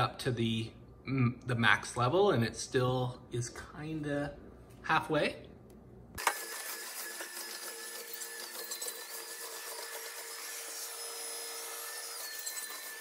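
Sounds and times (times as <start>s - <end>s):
vacuum cleaner motor whirring: 6.2s - 13.0s.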